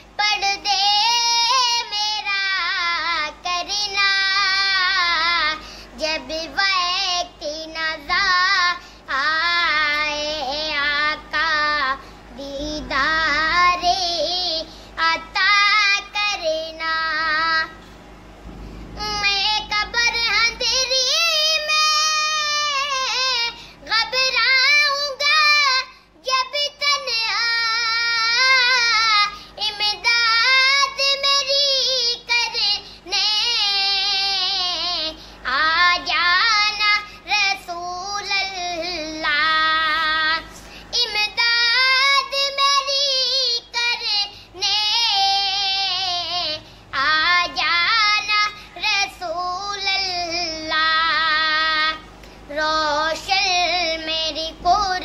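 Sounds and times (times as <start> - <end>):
child singing slow melody: 0.0 - 17.8, 19.0 - 55.0
child breathing: 5.6 - 6.0.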